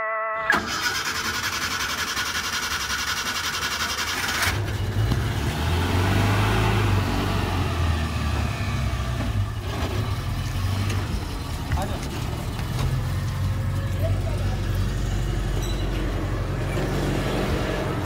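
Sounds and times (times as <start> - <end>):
car engine cranking and starting: 0.4 - 13.6.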